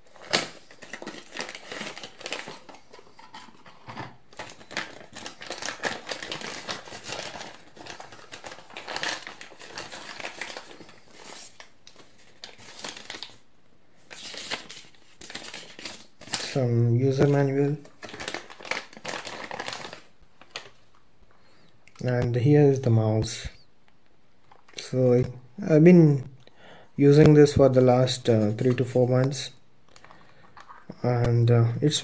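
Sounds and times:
plastic and paper crinkling: 0:00.0 - 0:13.4, 0:14.0 - 0:21.0, 0:27.2 - 0:31.0.

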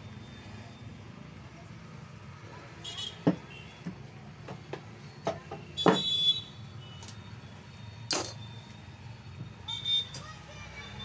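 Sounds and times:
metal parts clinking on workbench: 0:08.1 - 0:08.5
ringing metal clank: 0:08.1 - 0:08.5.

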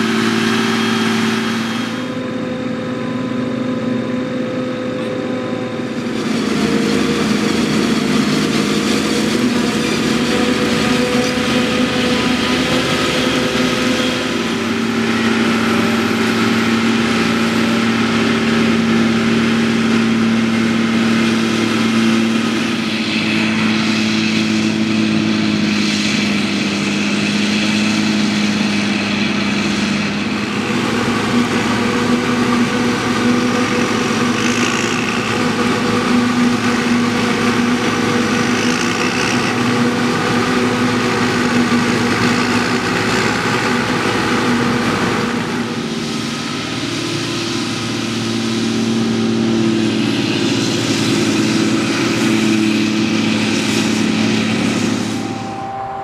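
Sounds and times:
tractor pulling a wagon: 0:00.0 - 0:55.6
forage harvester chopping maize: 0:25.4 - 0:45.8.

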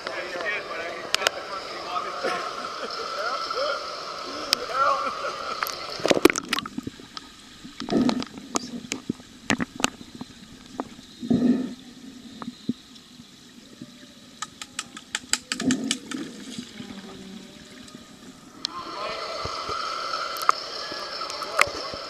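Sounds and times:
underwater bubbling: 0:02.5 - 0:22.0
splashing water: 0:04.5 - 0:11.0, 0:14.3 - 0:18.3.

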